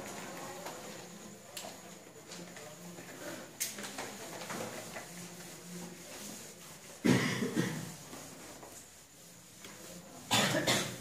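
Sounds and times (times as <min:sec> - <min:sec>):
low room noise: 0:00.0 - 0:11.0
person coughing: 0:07.0 - 0:07.9, 0:10.3 - 0:11.0.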